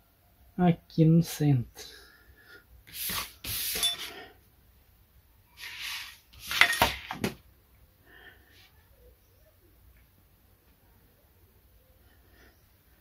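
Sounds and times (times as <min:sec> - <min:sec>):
metal tools clattering: 0:03.7 - 0:04.2, 0:06.4 - 0:07.2.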